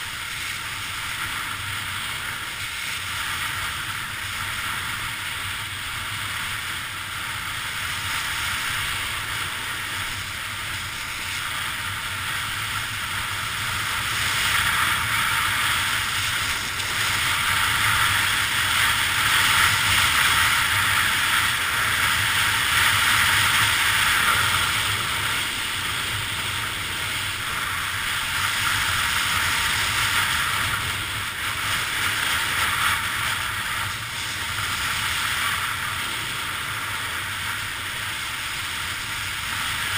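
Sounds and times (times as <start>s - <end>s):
skis hissing over snow: 0.0s - 39.9s
wind rushing over camera: 0.0s - 39.9s.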